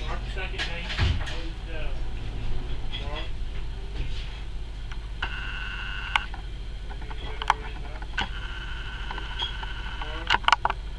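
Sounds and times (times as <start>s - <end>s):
constant low hum: 0.0s - 10.9s
steady electronic tone: 4.5s - 7.0s, 8.1s - 10.3s
sharp clicks: 6.1s - 8.4s.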